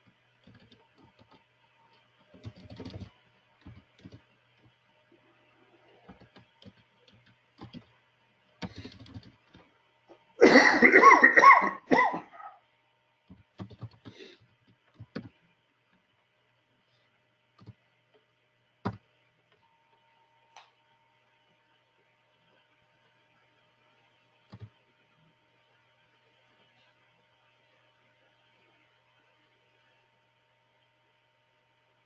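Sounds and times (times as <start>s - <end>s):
keyboard typing: 0.4s - 4.7s, 5.9s - 7.9s, 8.6s - 9.7s, 13.3s - 14.2s, 14.9s - 15.4s, 24.5s - 24.7s
person coughing: 10.4s - 12.5s.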